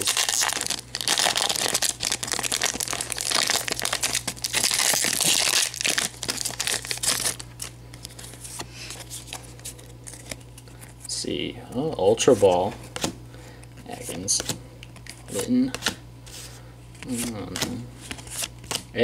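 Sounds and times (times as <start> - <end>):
foil wrapper crinkling: 0.0 - 11.1.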